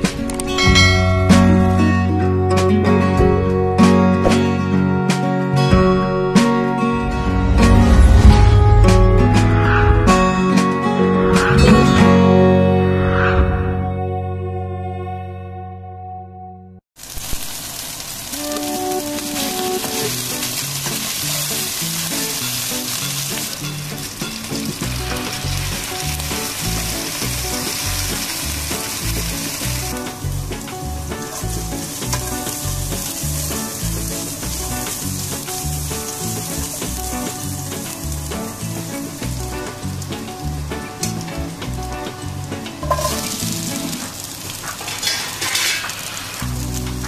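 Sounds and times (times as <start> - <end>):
background music with bass line: 0.0 - 16.8, 23.7 - 44.0
chicken sizzling in hot oil: 17.0 - 47.0
spatula turning food in pan: 17.1 - 47.0.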